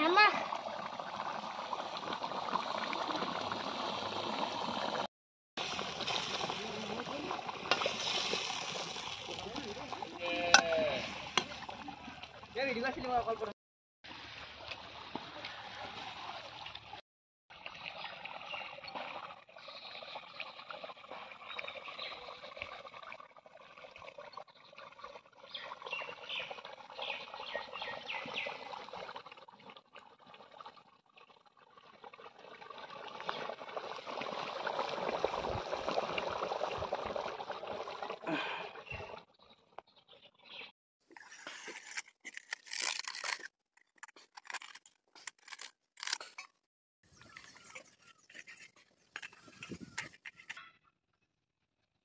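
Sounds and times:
curry simmering and bubbling: 0.4s - 12.8s, 17.9s - 45.5s.

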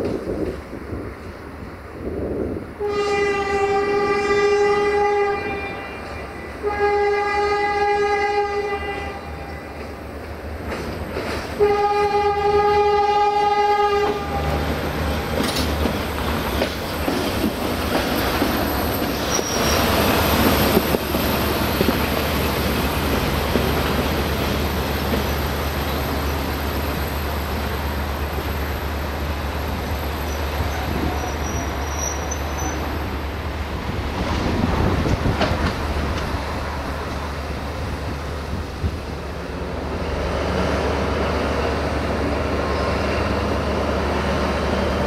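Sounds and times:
locomotive engine and wheels rumbling: 0.0s - 45.0s
locomotive horn blasts: 2.8s - 9.7s, 11.6s - 14.6s.

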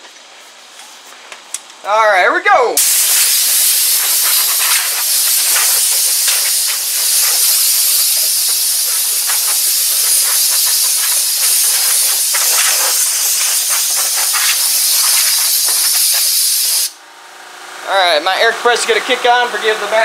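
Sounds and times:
air blow gun hissing: 2.8s - 17.0s.

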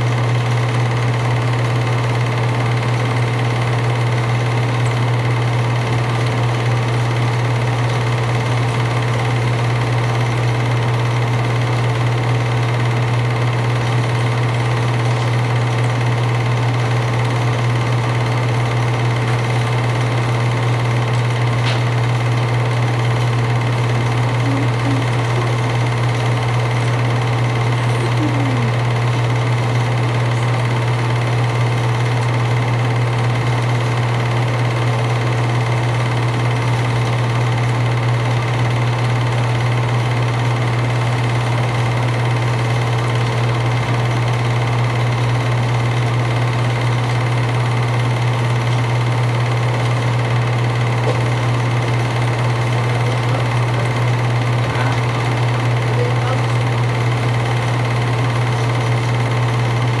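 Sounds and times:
film projector running: 0.0s - 60.0s.

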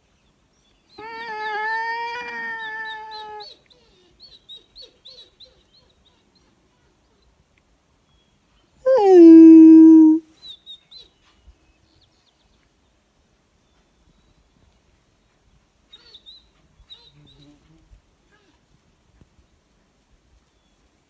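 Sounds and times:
howling: 1.0s - 4.1s.

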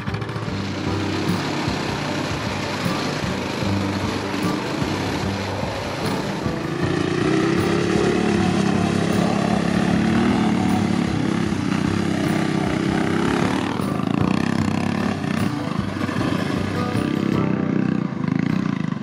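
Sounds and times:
small motorbike engine revving: 0.0s - 19.0s
tyres on loose gravel: 0.0s - 19.0s.

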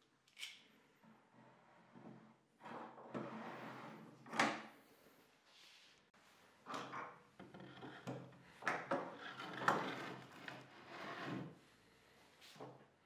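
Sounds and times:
knocks and scrapes: 6.7s - 11.6s.

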